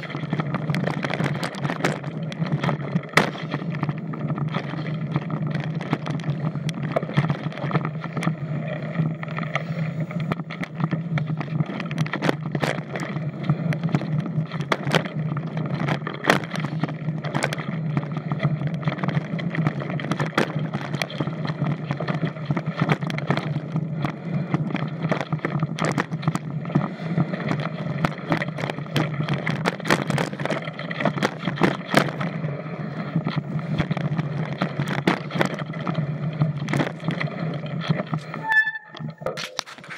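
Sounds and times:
rush of tyres and air: 0:00.0 - 0:38.5
bike chain and frame rattling: 0:00.0 - 0:39.9.

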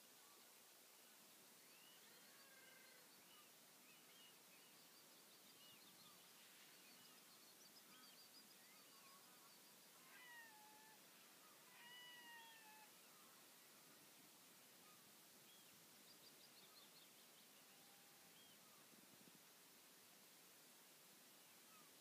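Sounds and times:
faint birdsong: 0:00.0 - 0:22.0.

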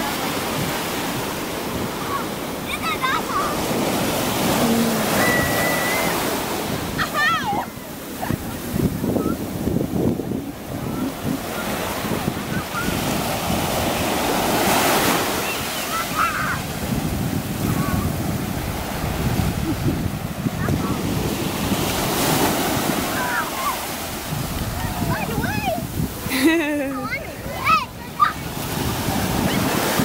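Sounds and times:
surf washing up beach: 0:00.0 - 0:30.0
faint voices: 0:01.7 - 0:13.3
wind buffeting microphone: 0:03.3 - 0:15.4, 0:16.0 - 0:30.0.

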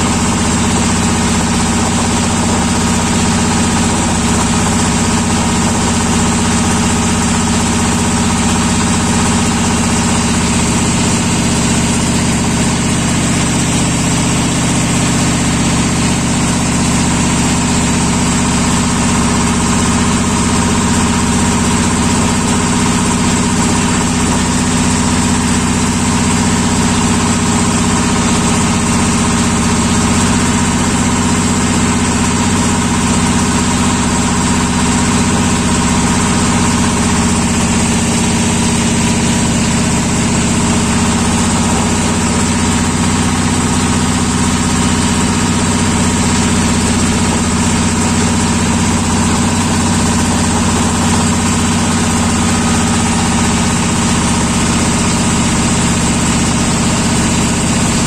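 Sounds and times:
boat engine humming: 0:00.0 - 0:58.0.

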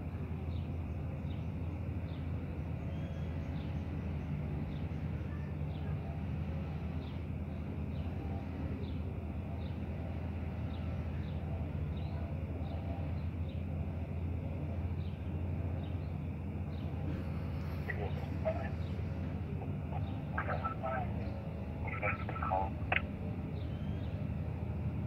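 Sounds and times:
steady low rumble: 0:13.1 - 0:25.0
small bird chirping: 0:19.9 - 0:24.2.

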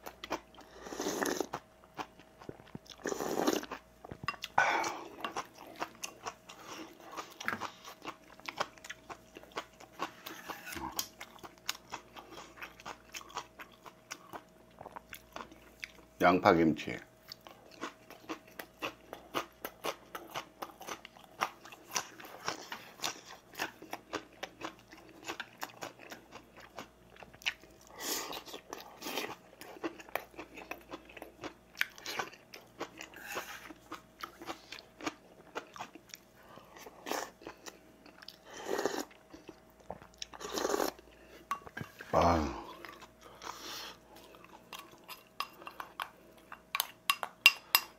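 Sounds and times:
crunchy chewing: 0:00.0 - 0:16.1, 0:17.2 - 0:42.0.

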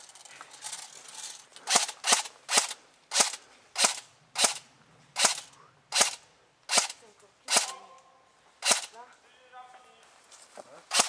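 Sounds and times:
airsoft gun shots: 0:01.7 - 0:04.6, 0:05.2 - 0:07.8, 0:08.6 - 0:09.0.

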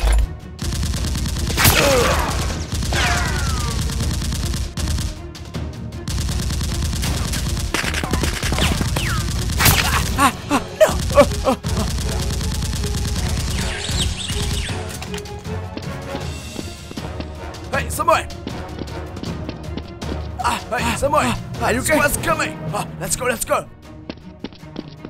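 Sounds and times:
background music: 0:00.0 - 0:25.0
rapid gunfire: 0:00.6 - 0:14.9
man crying out: 0:09.8 - 0:11.8.

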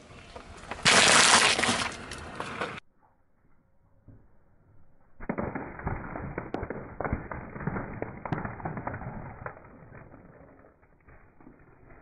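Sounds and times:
eggshells cracking under tyre: 0:00.4 - 0:02.7.

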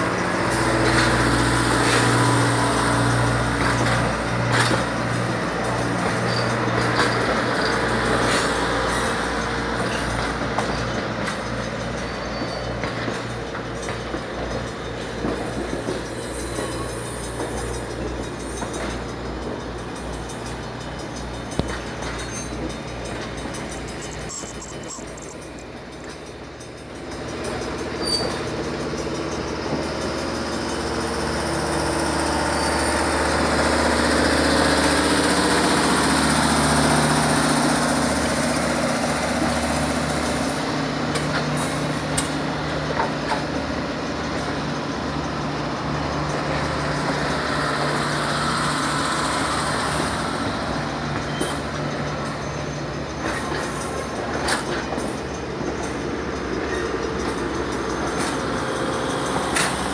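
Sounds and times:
train wheels rumbling on rails: 0:00.0 - 0:59.9
sharp clicks and knocks: 0:23.6 - 0:26.2.

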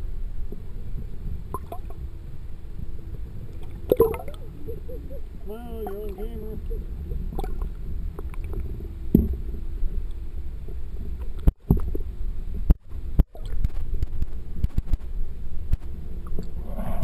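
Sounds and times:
underwater water rumble: 0:00.0 - 0:17.0.

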